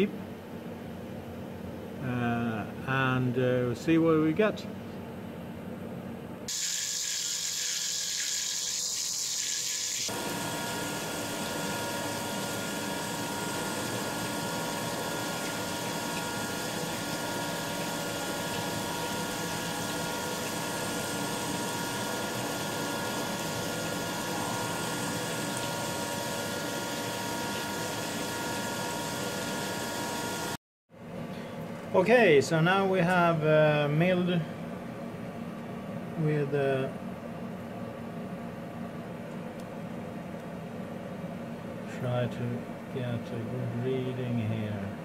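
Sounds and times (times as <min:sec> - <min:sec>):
hiss of coolant spray: 0:06.5 - 0:10.1.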